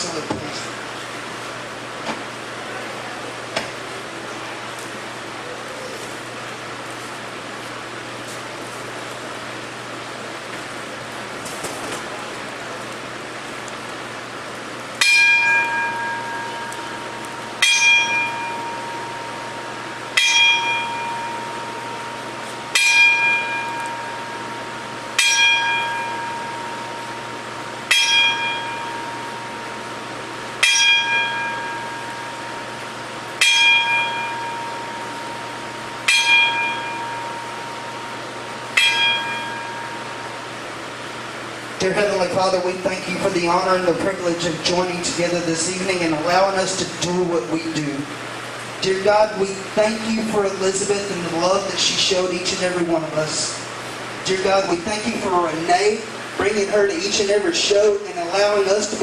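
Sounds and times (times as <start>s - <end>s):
ring bell struck: 15.0s - 40.6s.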